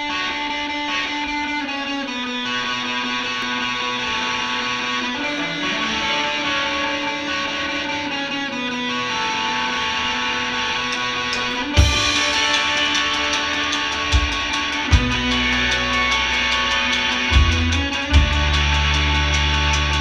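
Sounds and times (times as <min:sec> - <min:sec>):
electric guitar slow chords: 0:00.0 - 0:20.0.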